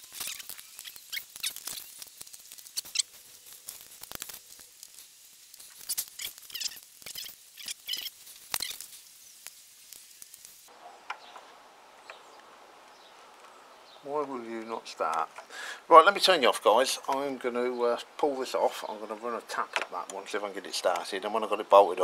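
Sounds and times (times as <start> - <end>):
small metallic clicks and scrapes: 0.0 - 12.2
faint hiss: 0.0 - 22.0.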